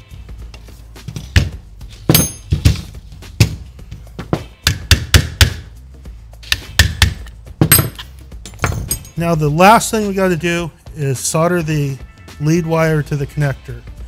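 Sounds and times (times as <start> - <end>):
hand tool tapping metal: 2.1 - 2.8, 6.4 - 9.2.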